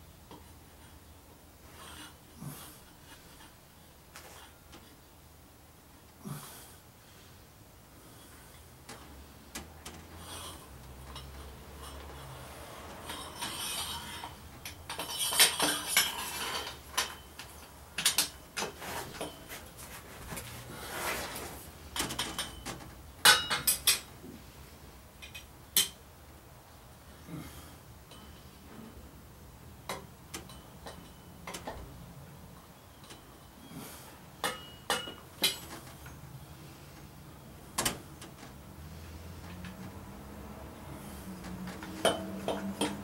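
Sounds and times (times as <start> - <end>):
metal pipes clinking and clattering: 10.8 - 20.6, 21.2 - 24.1, 29.9 - 31.9, 34.4 - 36.3, 41.4 - 43.0.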